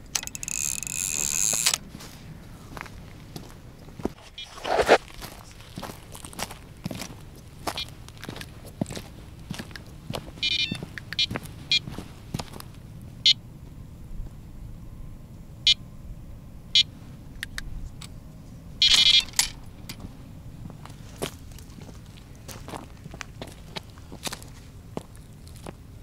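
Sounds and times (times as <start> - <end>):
footsteps crunching on frozen snow: 1.5 - 12.8, 20.0 - 25.8.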